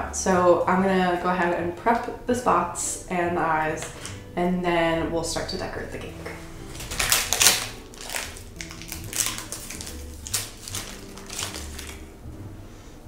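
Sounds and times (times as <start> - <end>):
plastic wrapper crinkling: 6.6 - 12.1.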